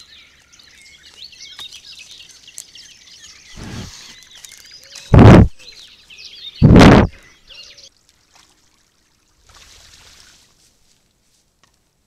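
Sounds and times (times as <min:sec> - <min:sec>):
birds singing faintly: 0:00.0 - 0:09.4
loud rushing blast on microphone: 0:05.1 - 0:05.5, 0:06.6 - 0:07.1.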